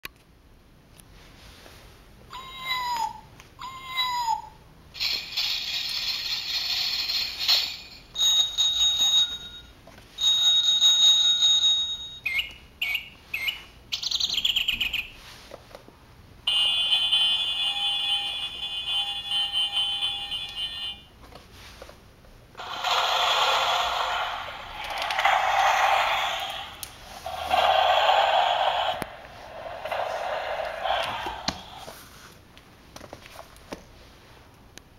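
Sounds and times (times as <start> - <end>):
sound book effects from small speaker: 22.6 - 32.3.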